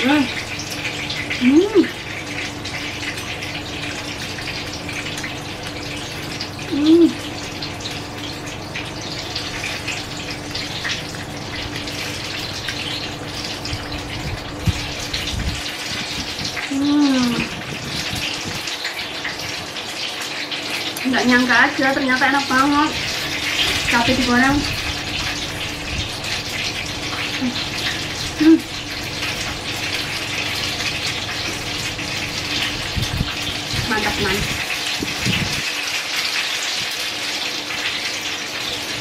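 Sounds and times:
person humming while eating: 1.4 - 2.0, 6.7 - 7.2, 16.7 - 17.6, 28.4 - 28.7.

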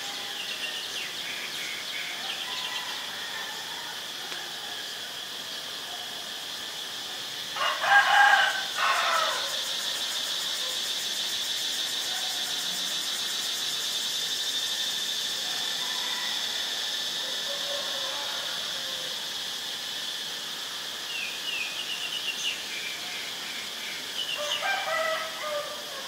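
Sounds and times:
high-pitched insect drone: 0.0 - 26.0
rooster crowing: 2.1 - 4.9, 7.6 - 9.8, 15.6 - 19.2, 24.4 - 26.0.

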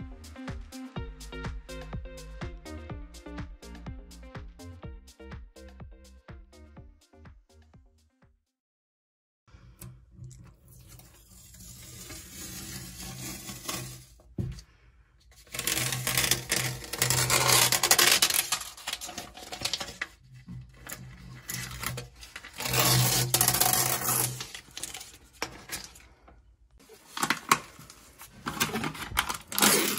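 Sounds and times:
paper liner tearing: 11.5 - 14.1, 15.4 - 20.1, 20.8 - 26.1, 28.5 - 29.9.

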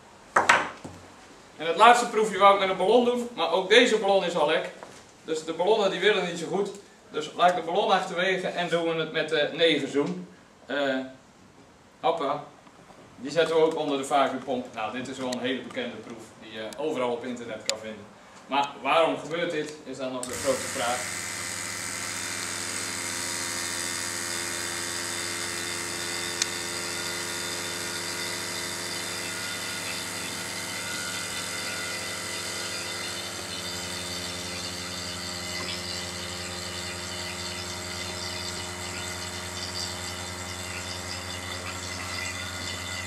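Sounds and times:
vacuum pump humming: 20.2 - 43.0.

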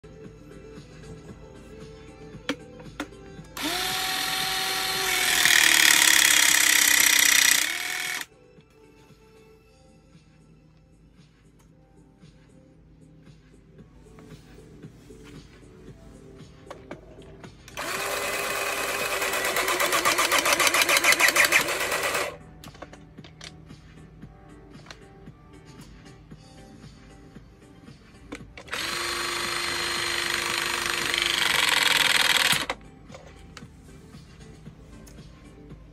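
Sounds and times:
tool clicks: 2.4 - 8.3, 17.7 - 23.6, 28.3 - 32.8
hydraulic pump motor running: 3.6 - 8.3, 17.7 - 22.4, 28.6 - 32.8.

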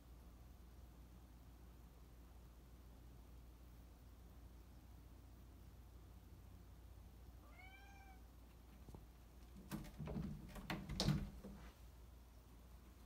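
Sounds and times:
cat meowing: 7.4 - 8.3
closet door knocking and rattling: 9.5 - 11.6.

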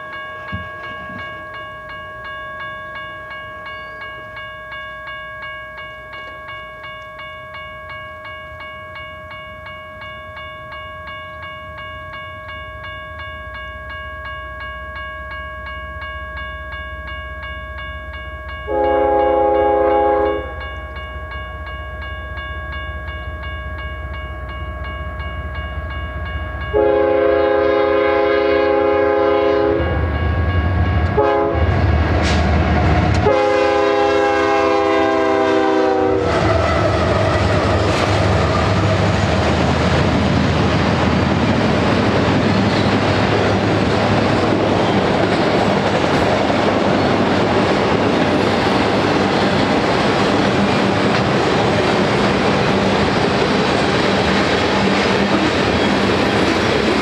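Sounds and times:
crossing warning bell ringing: 0.0 - 57.0
freight train rumble: 0.0 - 57.0
train horn blasts: 18.7 - 20.6, 26.7 - 30.0, 31.0 - 32.0, 32.8 - 37.8.

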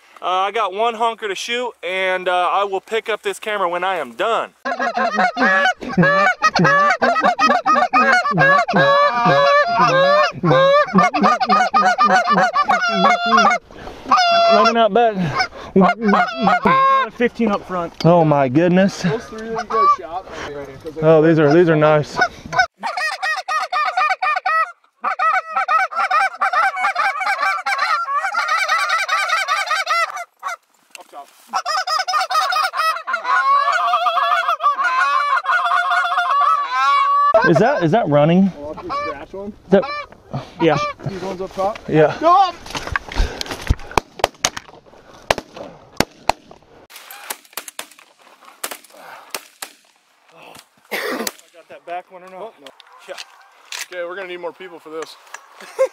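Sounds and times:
goose honking and clucking: 4.6 - 17.6, 18.9 - 20.2, 21.2 - 30.6, 31.4 - 41.3, 52.5 - 53.7.

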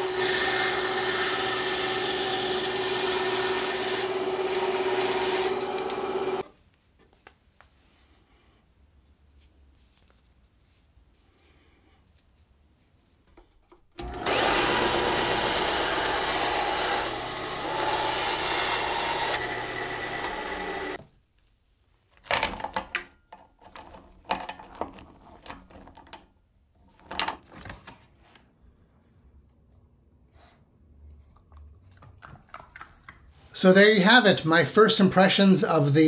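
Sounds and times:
band saw running: 0.0 - 6.5, 14.0 - 21.0.

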